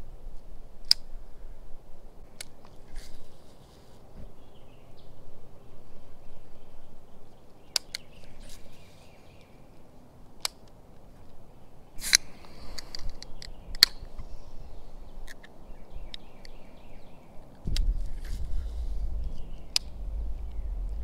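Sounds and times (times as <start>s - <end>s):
faint bird calls: 11.1s - 21.0s
low rumble: 17.6s - 21.0s
sharp clicks and knocks: 17.6s - 21.0s.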